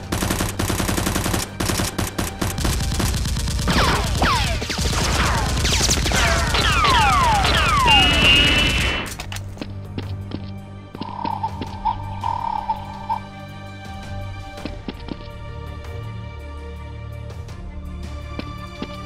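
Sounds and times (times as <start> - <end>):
machine-gun fire effects: 0.0 - 9.2.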